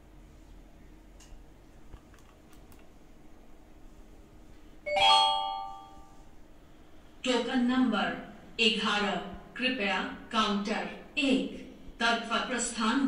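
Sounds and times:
call chime with ringing tones: 0:04.9 - 0:06.2.

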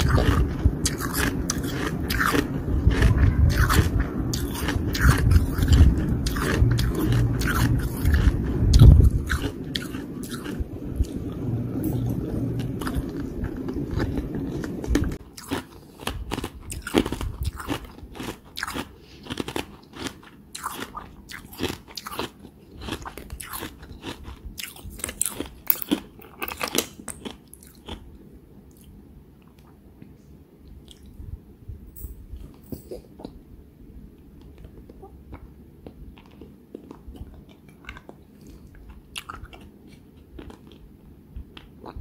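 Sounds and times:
chewing and crunching ice: 0:00.0 - 0:11.2, 0:12.0 - 0:28.1, 0:36.2 - 0:41.0.

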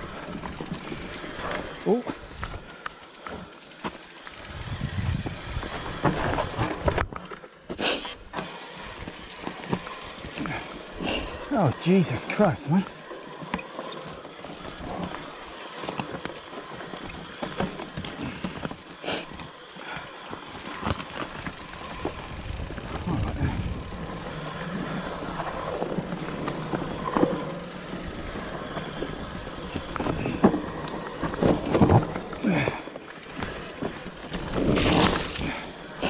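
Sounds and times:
bike tyres rolling over dirt: 0:00.0 - 0:36.0
bike knocks and rattles: 0:25.3 - 0:35.8.

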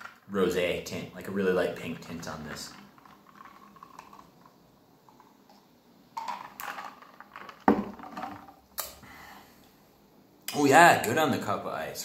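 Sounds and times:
ice cubes clinking in cup: 0:06.2 - 0:08.5
cup set down on wooden table: 0:07.7 - 0:08.4.

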